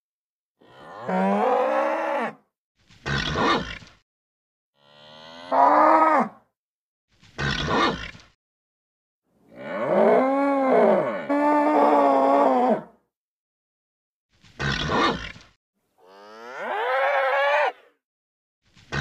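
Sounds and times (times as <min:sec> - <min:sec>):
bull mooing: 0:04.8 - 0:06.3, 0:16.0 - 0:17.8.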